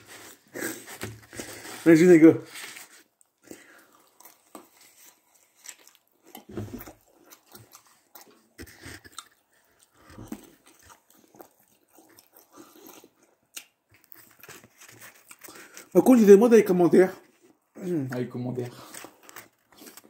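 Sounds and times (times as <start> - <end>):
person chewing food: 2.8 - 15.9.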